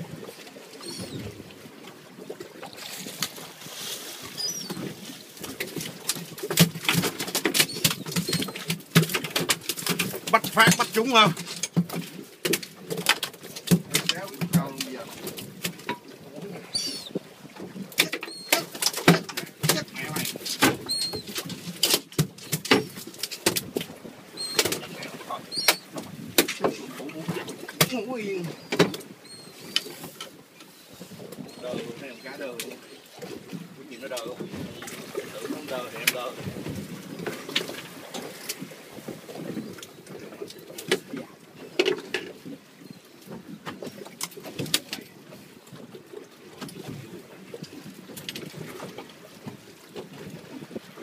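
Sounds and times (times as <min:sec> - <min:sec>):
waves around a boat: 0:00.0 - 0:51.0
wind: 0:00.0 - 0:51.0
seabirds calling: 0:00.2 - 0:06.4, 0:07.0 - 0:11.6, 0:14.1 - 0:21.5, 0:24.0 - 0:36.4, 0:37.2 - 0:44.1
high squeaky chirps: 0:16.7 - 0:17.1, 0:18.3 - 0:18.6, 0:20.9 - 0:21.2, 0:25.5 - 0:25.8.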